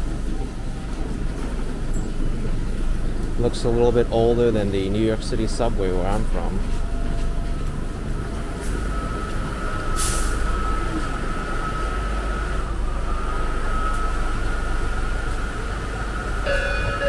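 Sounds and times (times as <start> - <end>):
subway train rumble and whine: 0.0 - 17.0
short hiss: 10.0 - 10.4.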